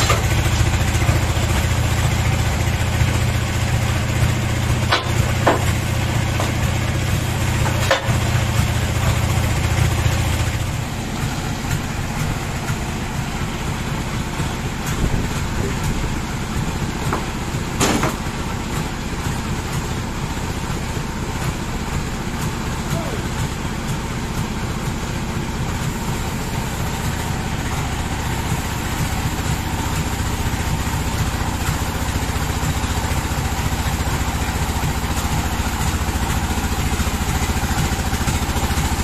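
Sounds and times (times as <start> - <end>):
sawmill engine humming: 0.0 - 39.0
sharp knocks of log handling: 4.8 - 6.9, 7.5 - 8.3, 17.0 - 18.3.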